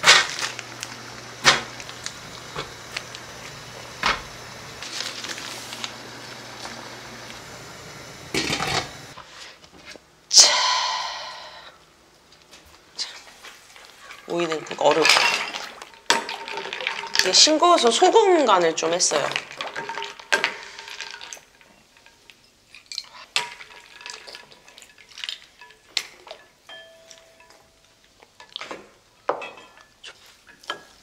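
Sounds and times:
plastic bag crinkling: 4.4 - 6.7.

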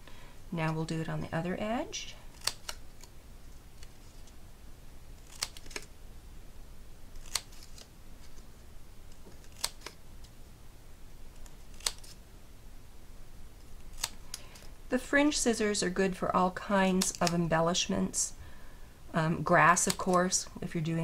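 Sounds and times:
scissors snipping cardstock: 2.3 - 3.1, 5.2 - 5.9, 7.2 - 7.9, 9.1 - 10.0, 11.4 - 12.2, 13.9 - 14.7, 16.8 - 17.5, 19.7 - 20.4.

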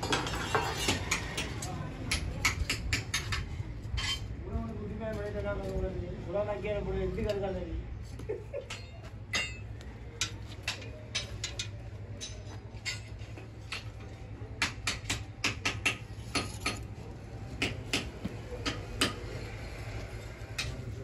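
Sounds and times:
metal clanks and clinks: 0.0 - 1.6, 8.6 - 14.2.

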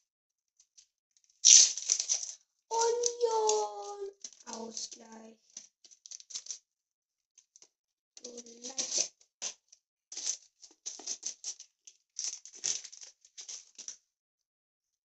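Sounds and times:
cards crinkling and rustling: 1.5 - 5.2, 5.9 - 6.6, 8.2 - 14.0
person humming: 2.7 - 5.1.

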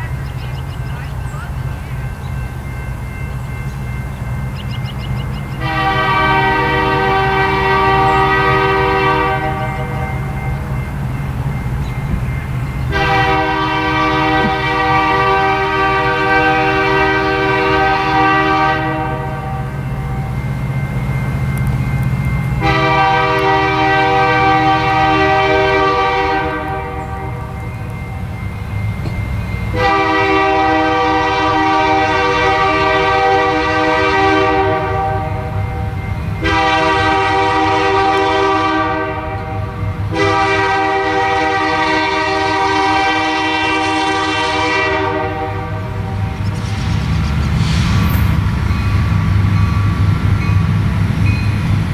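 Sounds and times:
train horn blasts: 5.5 - 10.8, 12.1 - 28.2, 29.0 - 50.7.

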